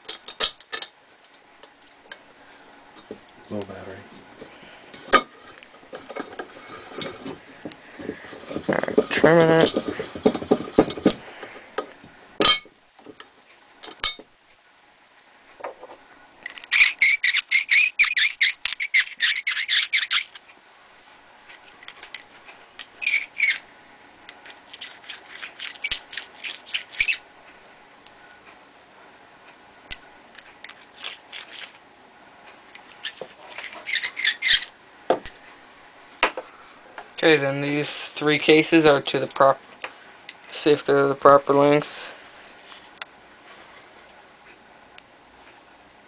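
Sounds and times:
deburring tool scraping: 5.0s - 11.6s.

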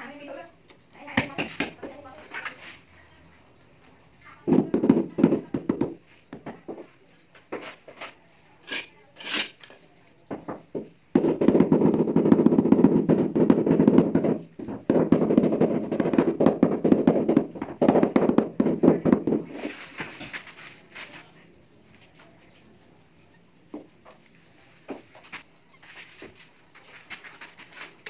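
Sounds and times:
tool scraping wet mortar: 7.5s - 9.8s.

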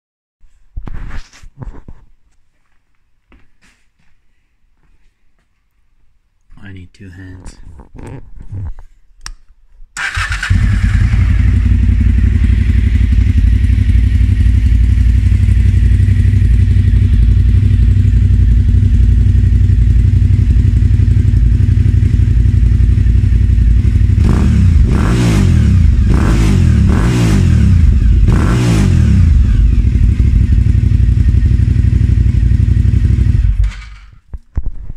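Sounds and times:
motorcycle engine starting: 10.0s - 34.3s
motorcycle engine idling: 10.1s - 25.1s, 25.7s - 34.1s.

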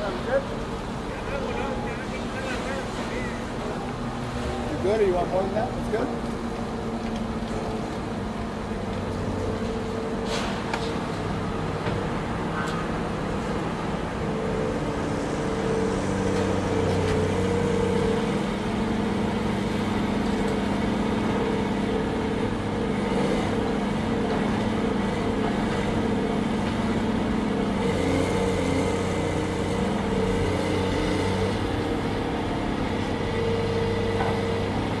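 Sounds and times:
excavator diesel engine running: 10.8s - 35.0s.

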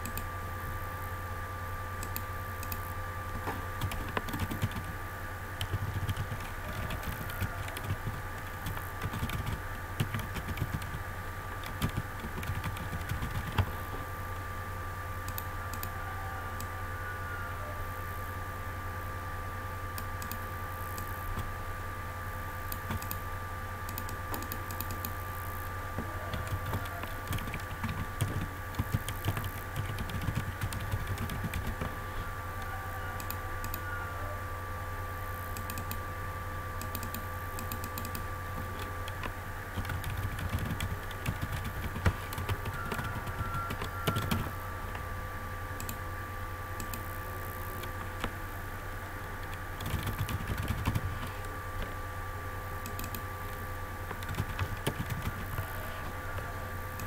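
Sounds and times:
low electrical hum: 0.0s - 57.0s
keyboard typing: 3.7s - 5.0s, 5.6s - 13.8s, 22.7s - 23.2s, 23.9s - 25.2s, 26.0s - 32.0s, 36.8s - 44.6s, 49.2s - 51.5s, 54.1s - 57.0s.

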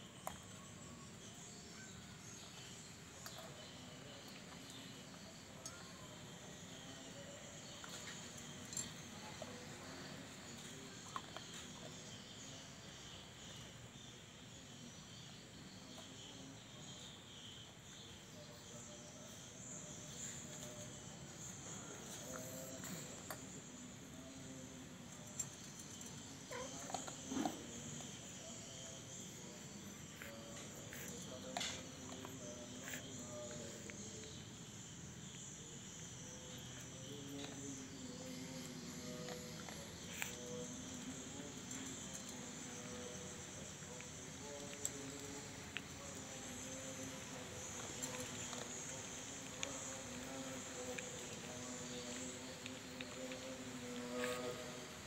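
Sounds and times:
insects chirring: 0.0s - 55.0s.

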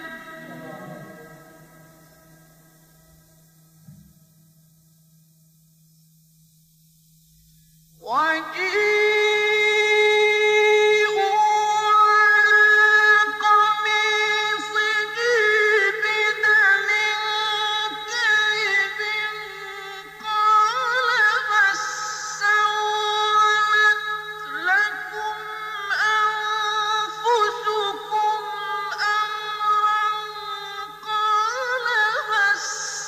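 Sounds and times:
man chanting a recitation: 0.0s - 2.0s, 8.0s - 33.0s
low recording hum: 0.0s - 33.0s.

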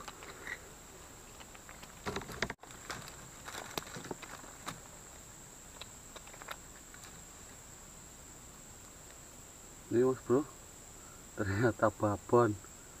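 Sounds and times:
rustling and small clicks: 0.0s - 0.6s, 1.2s - 7.6s
crickets droning: 0.0s - 13.0s.

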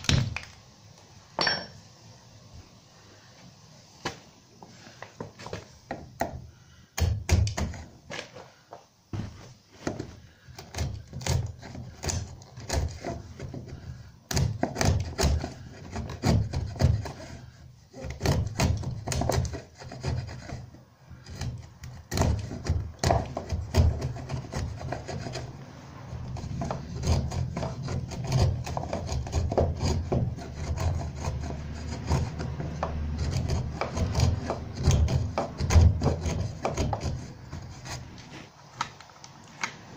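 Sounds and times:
hand tool rasping wood: 5.3s - 7.9s, 9.8s - 38.6s.

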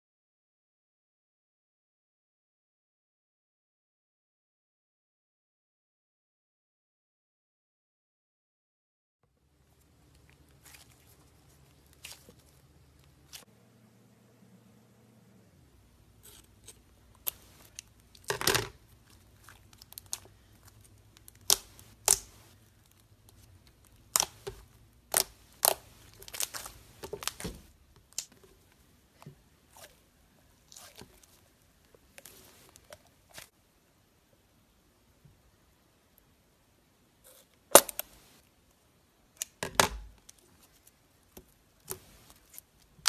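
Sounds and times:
slime squishing: 9.7s - 13.5s, 16.0s - 33.5s
rubber skin tearing: 19.4s - 22.6s, 24.0s - 28.4s, 37.7s - 38.1s.

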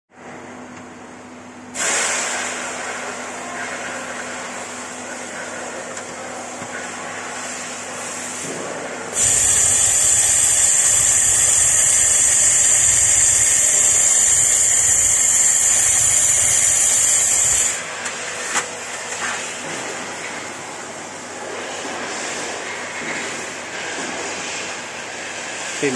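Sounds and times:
laser welding gun hissing: 9.2s - 18.0s.

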